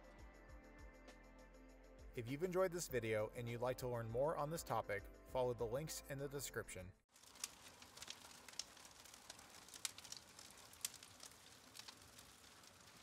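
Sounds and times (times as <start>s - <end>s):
campfire crackling: 7.1s - 13.0s.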